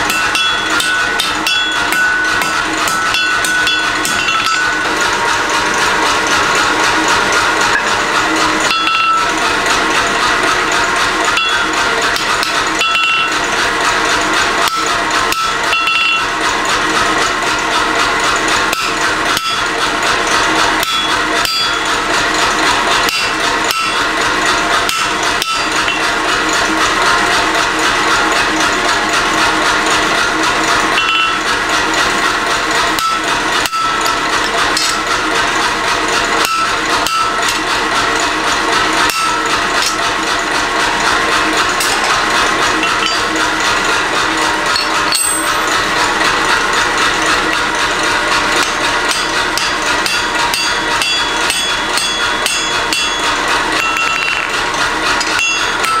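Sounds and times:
hammer striking chisel on metal: 0:00.0 - 0:09.9, 0:10.5 - 0:14.0, 0:14.6 - 0:16.6, 0:17.2 - 0:28.8, 0:30.6 - 0:32.2, 0:32.8 - 0:35.4, 0:36.0 - 0:40.1, 0:40.9 - 0:43.8, 0:44.4 - 0:47.7, 0:48.3 - 0:56.0
metallic rings: 0:00.0 - 0:09.9, 0:10.6 - 0:13.6, 0:14.6 - 0:16.6, 0:20.4 - 0:22.0, 0:23.1 - 0:27.3, 0:30.6 - 0:32.2, 0:36.1 - 0:37.9, 0:38.9 - 0:40.0, 0:41.6 - 0:46.3, 0:48.5 - 0:56.0.

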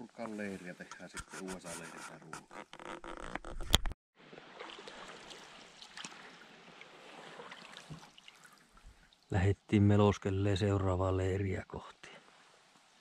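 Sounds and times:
water trickling and lapping: 0:04.2 - 0:09.5, 0:12.2 - 0:13.0.

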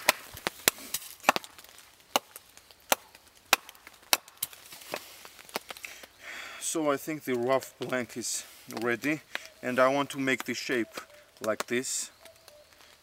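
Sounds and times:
axe chopping wood: 0:00.0 - 0:05.0.

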